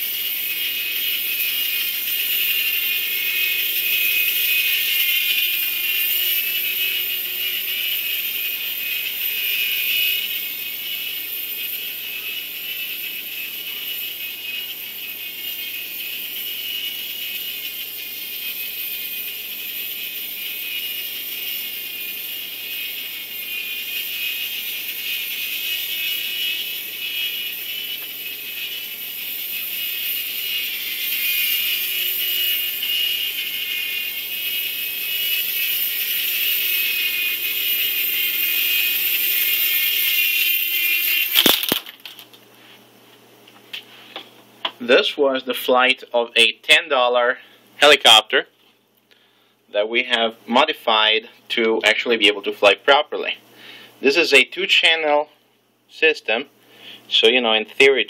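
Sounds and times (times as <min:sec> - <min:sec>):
toy helicopter whirring: 0:00.0 - 0:42.4.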